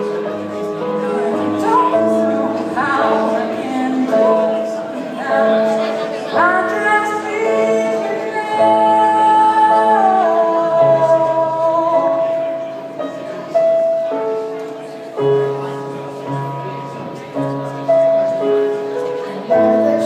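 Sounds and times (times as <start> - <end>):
piano accompaniment: 0.0 - 20.0
woman singing a ballad: 1.2 - 12.5, 19.6 - 20.0.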